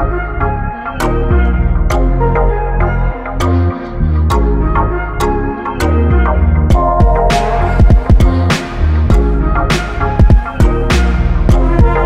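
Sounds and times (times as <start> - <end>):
music with drum beat and bass: 6.7 - 12.0.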